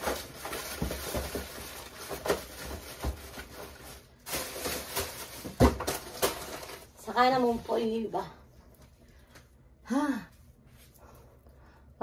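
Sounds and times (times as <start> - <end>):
packages rustling in cardboard box: 0.0 - 8.0.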